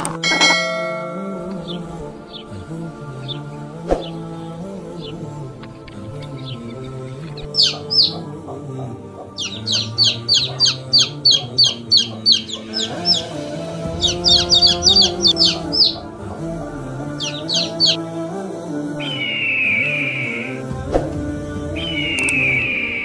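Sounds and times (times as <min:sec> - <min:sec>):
soft background music: 0:00.0 - 0:23.0
chicks peeping: 0:05.0 - 0:18.1.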